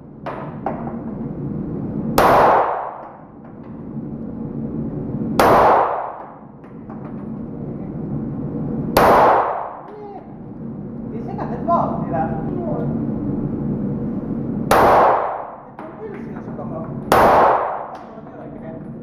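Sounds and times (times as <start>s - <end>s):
pistol shots with echo: 2.2s - 3.2s, 5.4s - 6.5s, 9.0s - 9.9s, 14.7s - 15.7s, 17.1s - 18.1s.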